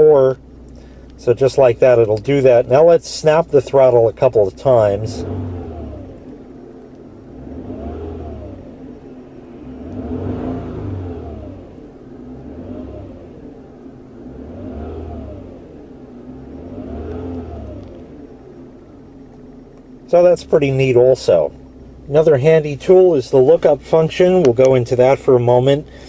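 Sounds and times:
car engine revving: 0:00.0 - 0:26.0.

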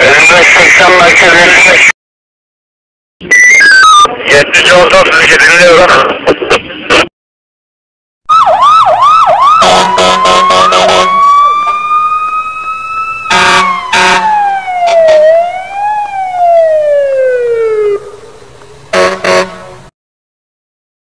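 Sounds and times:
police siren: 0:03.2 - 0:04.2, 0:08.3 - 0:18.4
short horn blasts: 0:13.3 - 0:14.3, 0:18.9 - 0:19.8.

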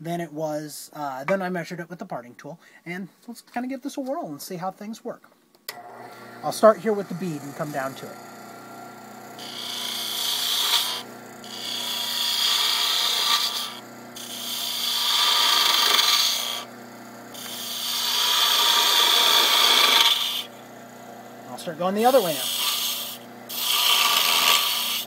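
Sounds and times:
lathe humming: 0:05.7 - 0:25.0
gouge shaving hiss on wood: 0:09.4 - 0:16.7, 0:17.3 - 0:20.6, 0:21.5 - 0:25.0.

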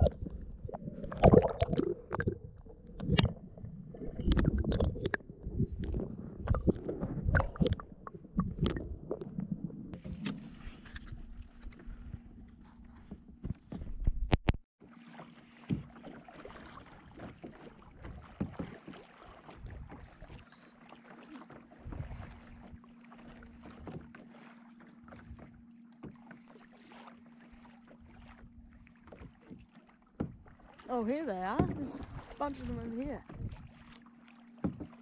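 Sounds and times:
water splashing around kayak: 0:00.0 - 0:14.0, 0:14.8 - 0:35.0.

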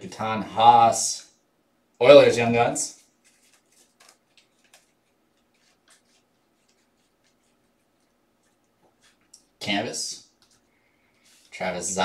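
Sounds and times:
cards flipped by hand: 0:03.2 - 0:07.6.

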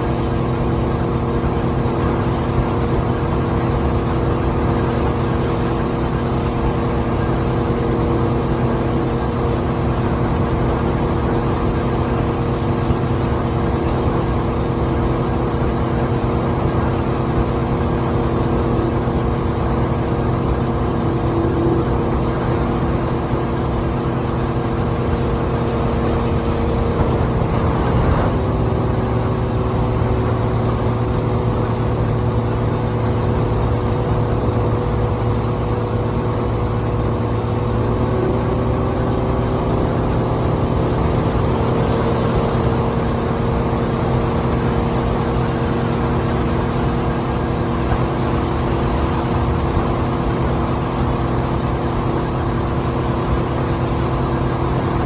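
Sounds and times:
rush of moving boat: 0:00.0 - 0:55.0
speedboat engine running: 0:00.0 - 0:55.0.

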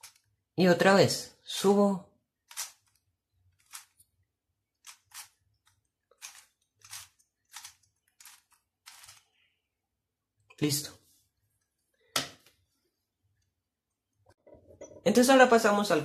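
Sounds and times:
puzzle cube rasping clicks: 0:02.5 - 0:04.0, 0:04.8 - 0:09.4.

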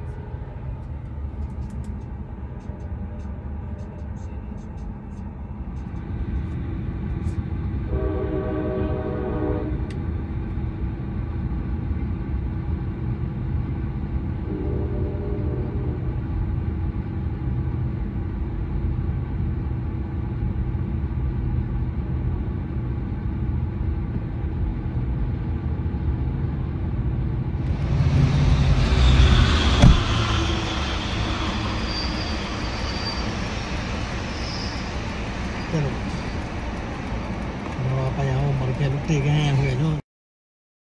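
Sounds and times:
train passing on tracks: 0:00.0 - 0:40.0
sharp knock: 0:29.8 - 0:30.2.

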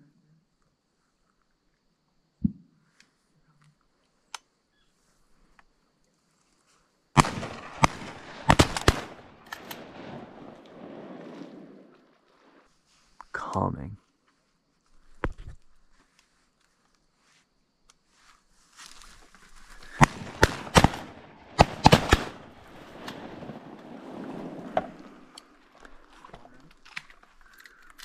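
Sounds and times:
shotgun shots: 0:07.2 - 0:11.8, 0:19.9 - 0:25.3.

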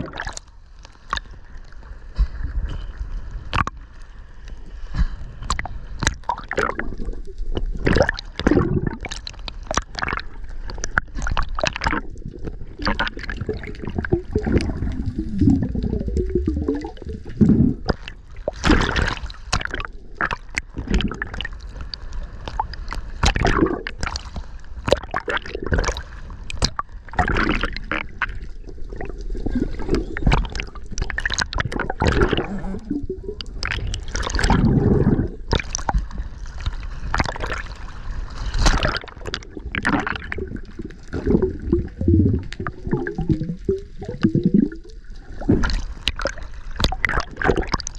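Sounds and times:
water gurgling underwater: 0:00.0 - 0:01.4, 0:05.0 - 0:47.9
low rumble: 0:13.6 - 0:17.9.

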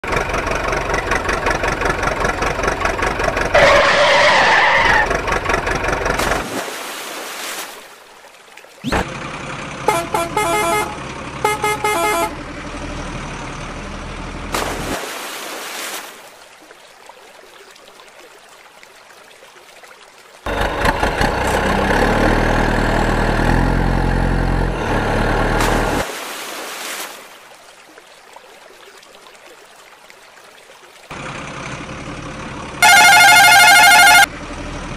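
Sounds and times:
truck engine: 0:00.0 - 0:06.6, 0:08.8 - 0:15.0, 0:20.5 - 0:26.1, 0:31.1 - 0:34.9
truck horn blasts: 0:09.8 - 0:12.6, 0:32.8 - 0:34.4.

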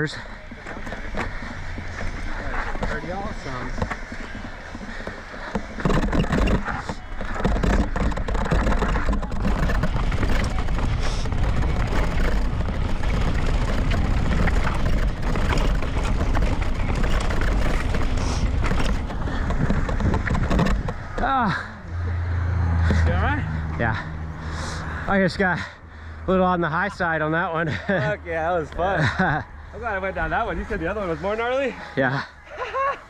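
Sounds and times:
bike tyres grinding over stones: 0:00.0 - 0:32.2
bike rattling over bumps: 0:00.0 - 0:33.0
wind buffeting on microphone: 0:01.0 - 0:21.3.

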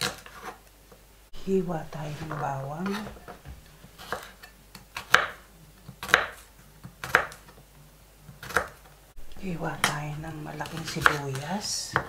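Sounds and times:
knife chopping on wooden board: 0:02.0 - 0:07.5, 0:08.3 - 0:08.8, 0:09.7 - 0:12.0.

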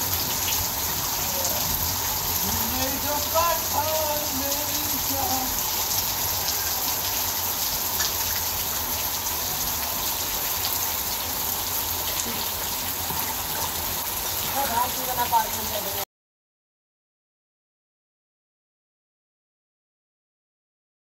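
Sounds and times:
rain falling on a wet rooftop: 0:00.0 - 0:16.1.

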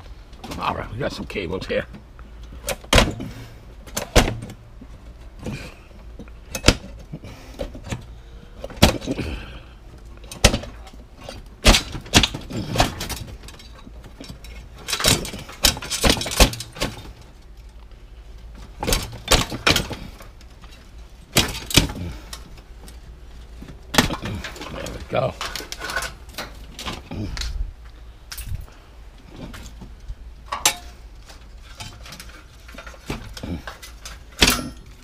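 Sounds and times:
sheet metal knocks and rattles: 0:10.3 - 0:17.2.

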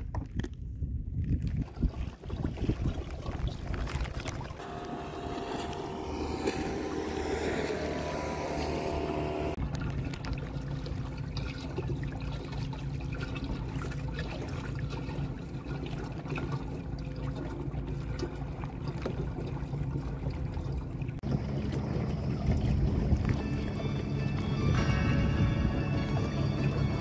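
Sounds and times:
water lapping against hull: 0:01.2 - 0:27.0
electric motor humming: 0:04.6 - 0:09.6.

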